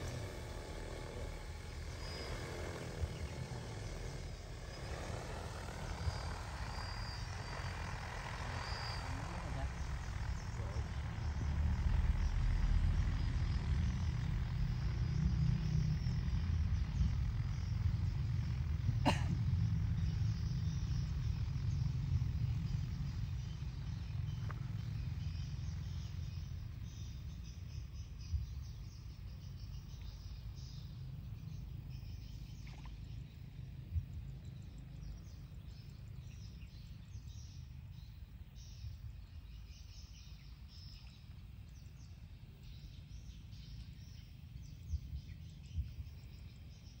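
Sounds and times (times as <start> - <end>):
insects chirping: 0.0 - 31.6
birds chirping: 0.0 - 47.0
low steady rumble: 0.0 - 47.0.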